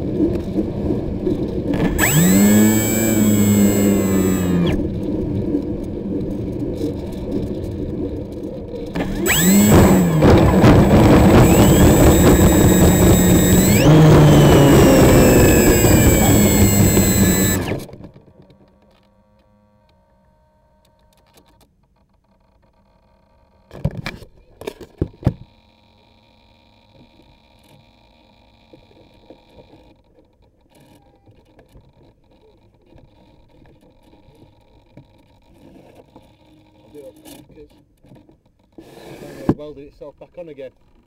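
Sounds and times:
model plane motor whine: 1.8s - 5.5s, 8.9s - 21.2s.

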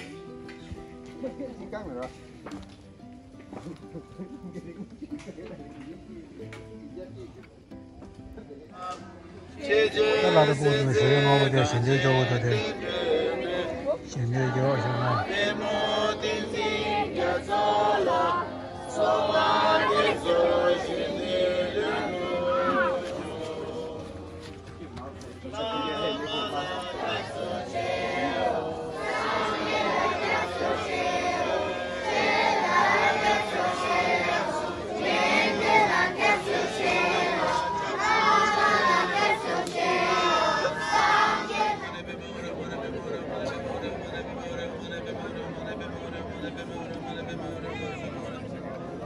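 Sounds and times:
voices singing together: 9.5s - 47.3s.

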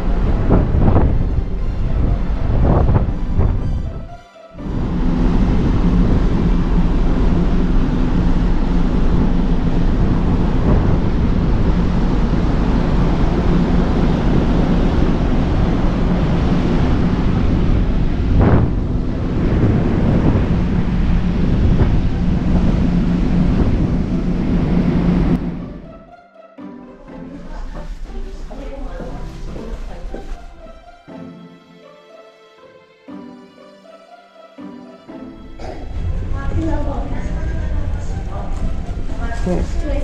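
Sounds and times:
wind buffeting microphone: 0.0s - 25.5s, 35.7s - 40.0s
sea rushing: 0.0s - 26.0s, 34.7s - 40.0s
ferry engine hum: 0.0s - 40.0s.

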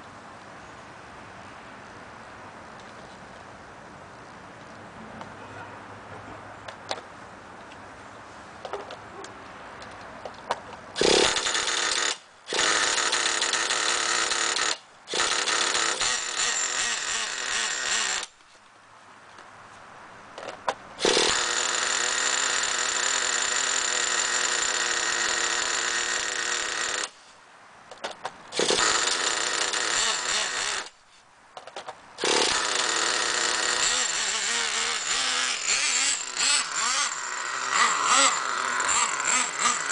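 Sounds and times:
electric starter whirring: 11.0s - 18.4s, 21.0s - 27.2s, 28.5s - 31.0s, 32.2s - 39.9s.

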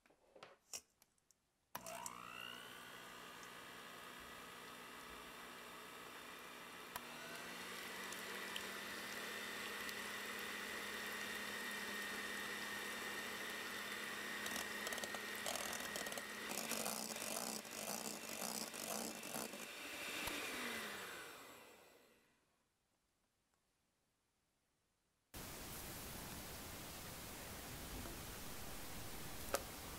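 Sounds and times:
electric hand mixer whirring: 1.8s - 22.3s.

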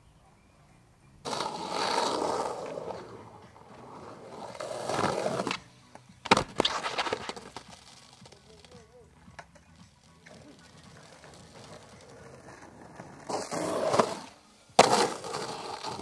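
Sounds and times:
skateboard wheels on concrete: 1.2s - 16.0s
skateboard clacking on concrete: 1.3s - 16.0s.

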